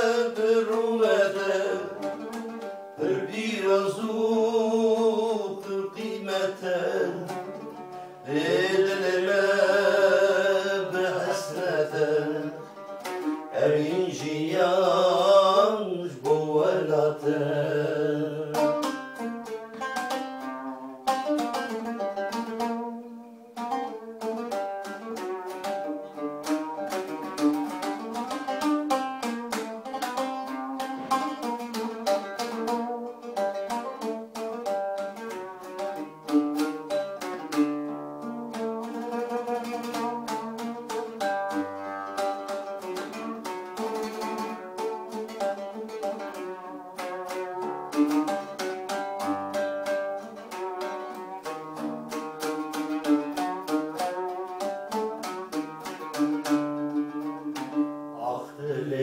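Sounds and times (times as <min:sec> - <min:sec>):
man singing: 0:00.0 - 0:02.4, 0:03.0 - 0:12.8, 0:13.5 - 0:19.0, 0:58.2 - 0:59.0
oud plucked: 0:00.0 - 0:59.0.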